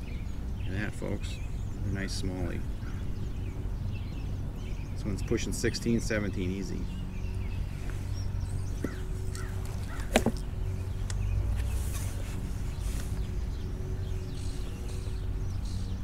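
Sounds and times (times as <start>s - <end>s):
steady low rumble: 0.0s - 16.0s
crows cawing: 8.8s - 10.4s.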